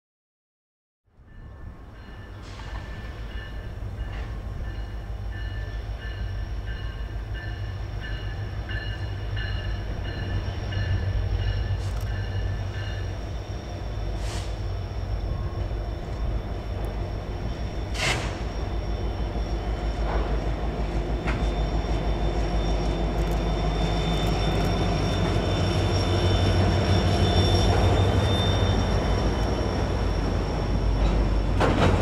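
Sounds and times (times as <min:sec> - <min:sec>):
diesel locomotive rumbling: 0:01.1 - 0:32.0
short high squeaks: 0:21.2 - 0:32.0.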